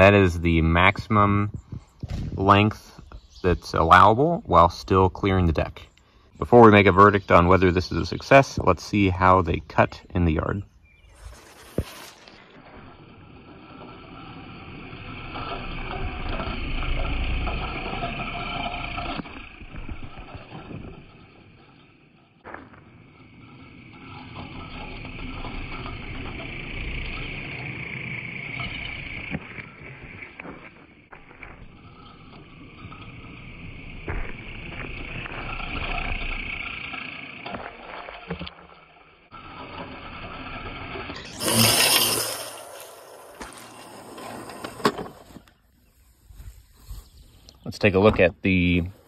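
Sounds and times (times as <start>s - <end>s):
robotic mower whirring and whining: 10.7s - 47.6s.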